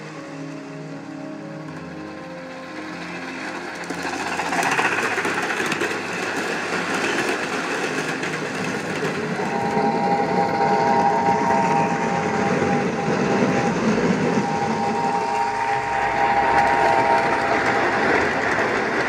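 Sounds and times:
steady high tone: 0:00.0 - 0:19.0
model train wheels clattering: 0:02.8 - 0:10.0.

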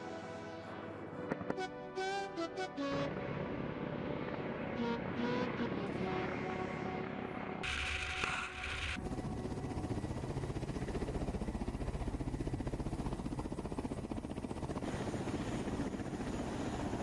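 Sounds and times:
helicopter rotor blades beating: 0:01.0 - 0:17.0
turbine noise: 0:03.1 - 0:11.6.

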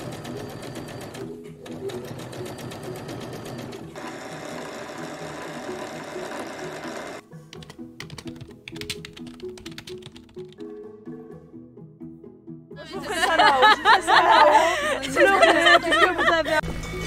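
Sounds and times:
sewing machine stitching: 0:00.0 - 0:07.2
background music: 0:00.0 - 0:17.0
computer keyboard typing: 0:07.5 - 0:10.6.

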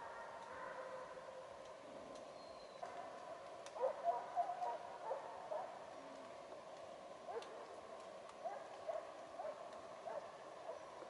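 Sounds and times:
distant hounds baying: 0:00.0 - 0:01.3, 0:02.8 - 0:06.0, 0:08.4 - 0:11.0.

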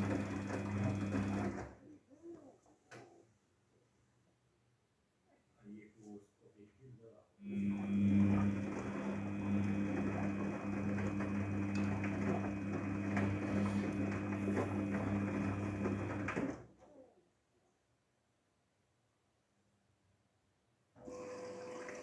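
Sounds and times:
washing machine motor hum: 0:00.0 - 0:01.8, 0:07.4 - 0:16.7, 0:21.0 - 0:22.0
wet laundry washing in drum: 0:00.0 - 0:01.8, 0:07.5 - 0:16.6.

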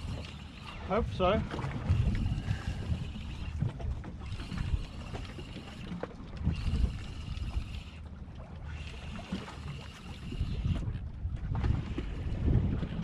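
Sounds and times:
fishing reel whirring: 0:00.0 - 0:01.2, 0:01.8 - 0:11.0
water noise: 0:00.0 - 0:13.0
wind rumbling on microphone: 0:00.0 - 0:13.0.

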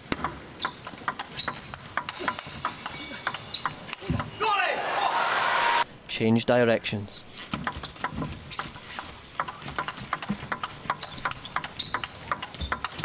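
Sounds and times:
short high squeaks: 0:01.3 - 0:04.0, 0:11.1 - 0:12.8
table tennis ball clicking: 0:09.4 - 0:13.0.

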